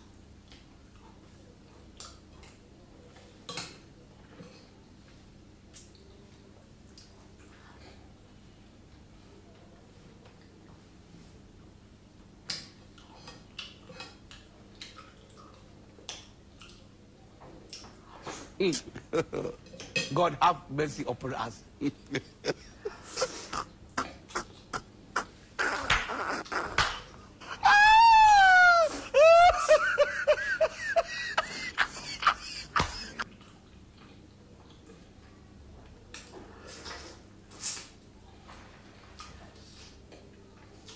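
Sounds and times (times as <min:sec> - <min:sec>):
falling vocal notes like laughter: 0:21.8 - 0:33.2
person wailing: 0:21.8 - 0:33.2.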